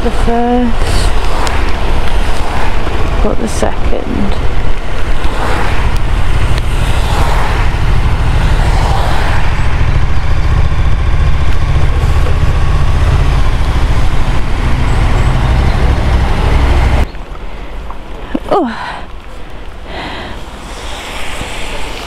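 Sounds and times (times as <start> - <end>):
wind rumbling on microphone: 0.0 - 22.0
motorcycle engine: 4.3 - 17.1.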